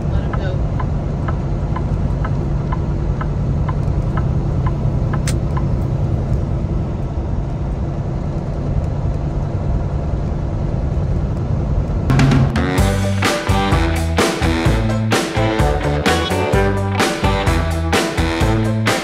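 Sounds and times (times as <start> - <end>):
light regular ticking: 0.0 - 6.4
truck engine and road drone: 0.0 - 19.0
sharp click: 5.1 - 5.7.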